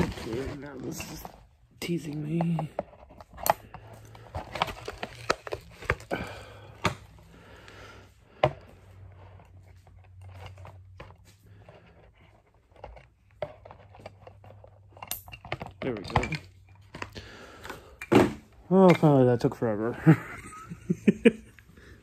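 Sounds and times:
plastic packaging clicks and crinkles: 0:03.3 - 0:07.0.

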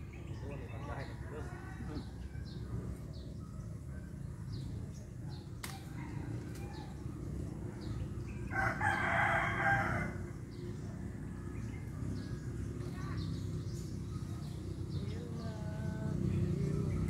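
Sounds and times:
rooster crowing: 0:08.5 - 0:10.2.

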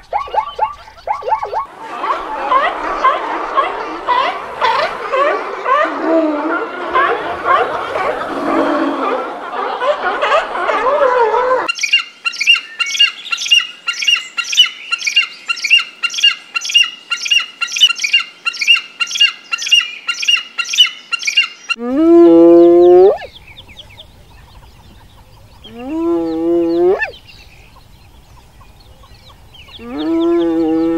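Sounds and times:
seals bleating and barking: 0:00.0 - 0:11.7
hyena whooping: 0:01.3 - 0:11.7.

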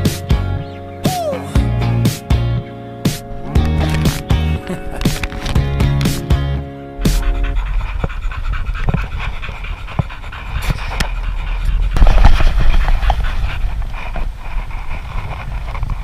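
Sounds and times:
dog panting: 0:07.0 - 0:16.0.

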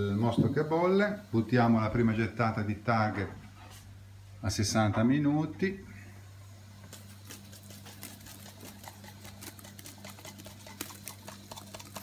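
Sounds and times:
steady low hum: 0:00.0 - 0:12.0
liquid boiling in a pot: 0:06.5 - 0:12.0.

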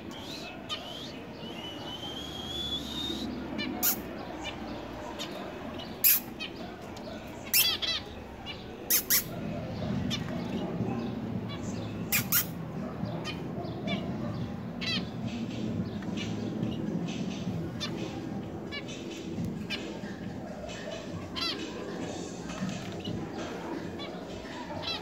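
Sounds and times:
low background murmur: 0:00.0 - 0:25.0
finches calling: 0:07.4 - 0:09.4.

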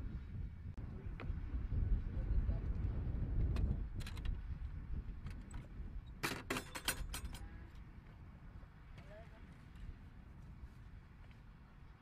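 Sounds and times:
metal latch clicks and rattles: 0:06.2 - 0:07.4.

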